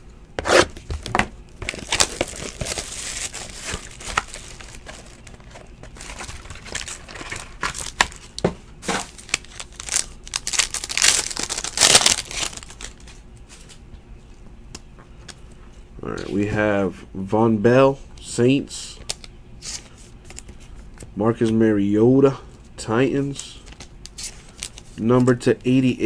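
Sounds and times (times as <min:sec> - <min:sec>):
plastic wrap crinkling and tearing: 0:01.6 - 0:13.1.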